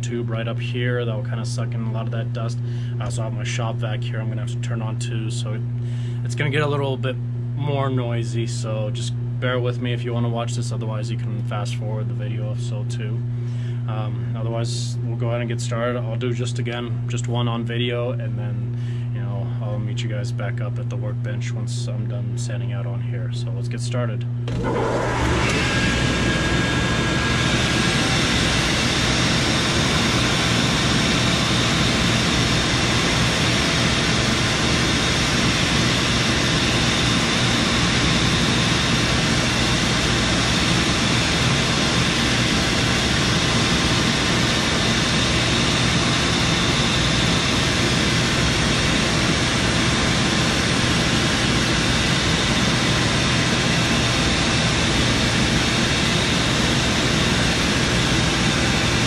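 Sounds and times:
motor hum: 0.0 - 10.0, 10.6 - 17.2, 24.2 - 59.0
shop vac suction rushing: 24.5 - 59.0.

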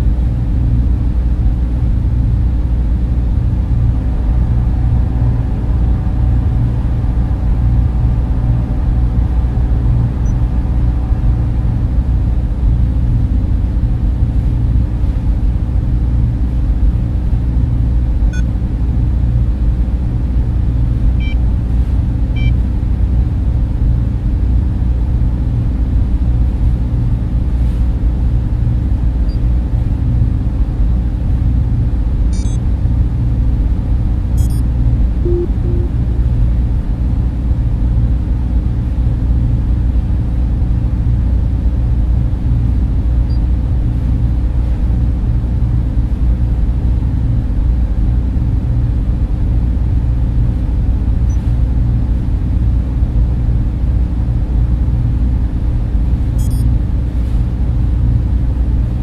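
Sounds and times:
deep rumbling drone: 0.0 - 59.0
faint higher hum: 0.0 - 59.0
small electronic blips: 32.3 - 32.6, 34.4 - 34.6, 35.3 - 36.0, 56.4 - 56.7.

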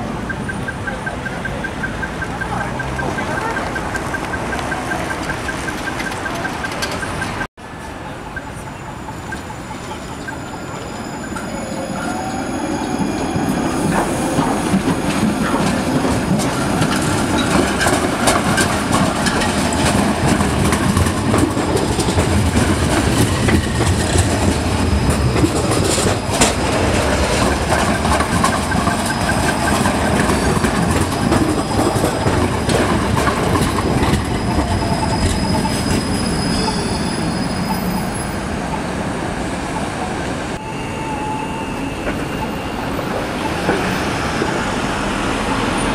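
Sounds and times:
tram wheels rumbling on rail: 0.0 - 45.9
wheels clicking over rail joints: 0.2 - 7.5, 13.0 - 36.8
wheel squeal: 9.0 - 38.9, 40.6 - 44.6.

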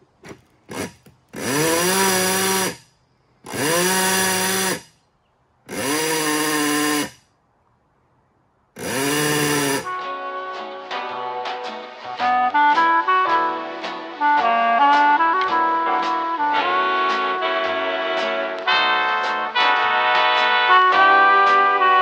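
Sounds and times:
electric horn blasts: 8.8 - 11.2, 12.2 - 22.0.

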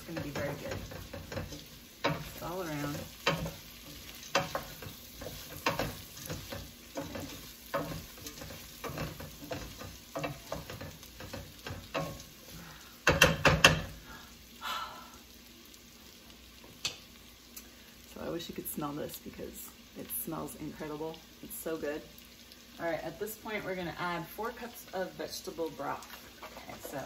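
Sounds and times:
wooden spoon scraping pot: 0.0 - 13.8, 26.1 - 27.0
vegetables sizzling in oil: 0.0 - 27.0.

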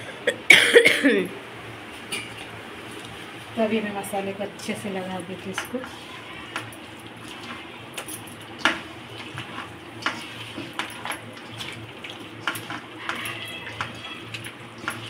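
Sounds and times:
utensils and dishes clinking: 9.6 - 15.0.

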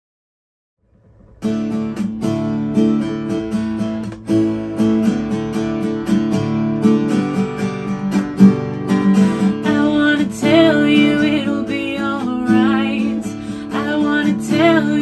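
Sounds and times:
acoustic guitar strumming: 0.9 - 15.0
woman singing: 9.4 - 15.0.

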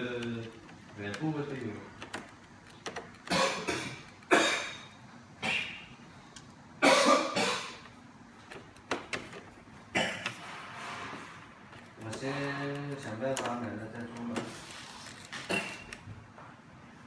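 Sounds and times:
person coughing: 3.3 - 5.8, 6.8 - 7.8, 9.9 - 10.4, 15.4 - 15.9.

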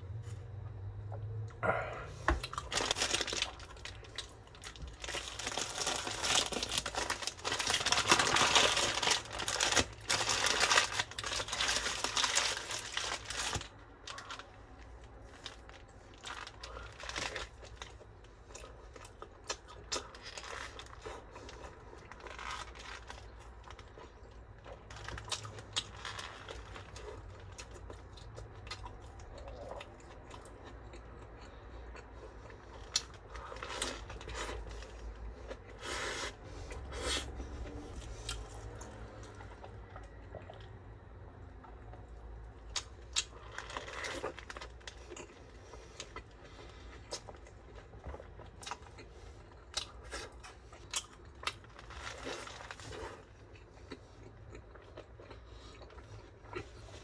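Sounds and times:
paper wrapper crinkling: 2.6 - 14.6, 15.3 - 17.9.

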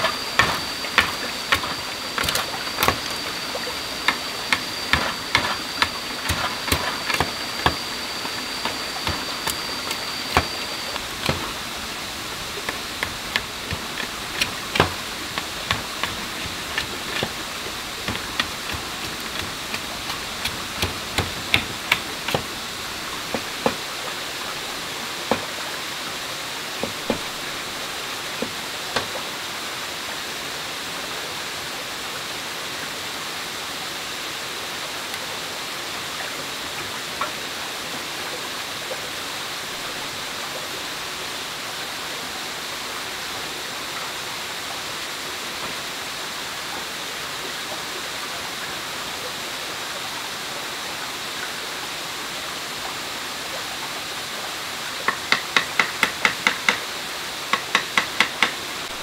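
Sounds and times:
knife cutting bamboo: 0.0 - 23.8
stream rushing: 0.0 - 59.0.

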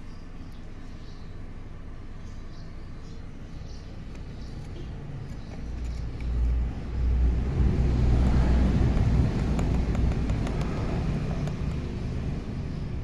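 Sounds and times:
passing vehicle rumble: 3.2 - 13.0.

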